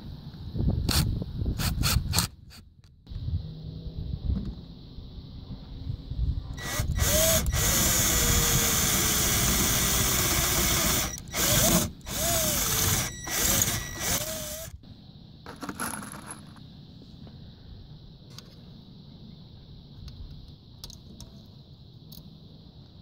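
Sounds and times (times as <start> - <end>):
cordless drill whining: 6.6 - 14.7
screws rattling in plastic box: 10.3 - 14.7.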